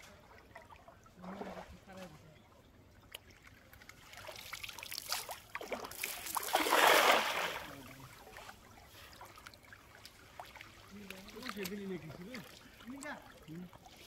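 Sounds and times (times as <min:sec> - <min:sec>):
cast net splashing on water: 0:04.0 - 0:08.5
water dripping: 0:09.3 - 0:13.7.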